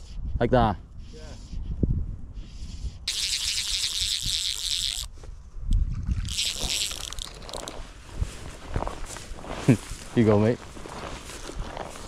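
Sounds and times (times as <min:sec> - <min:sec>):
fishing reel ratcheting: 0:03.1 - 0:05.1, 0:06.2 - 0:07.8.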